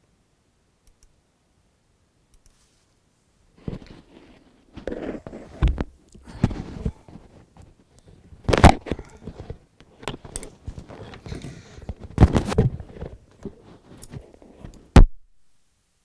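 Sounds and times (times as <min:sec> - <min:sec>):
microphone handling noise: 0:03.6 - 0:15.2.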